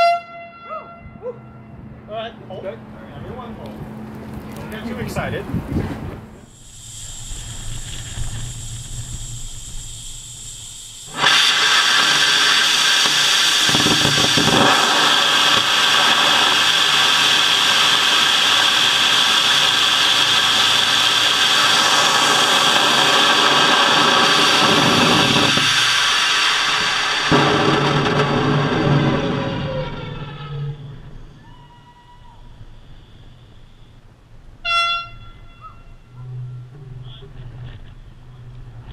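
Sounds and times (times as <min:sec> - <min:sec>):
rocket motor roaring: 0:03.0 - 0:33.8.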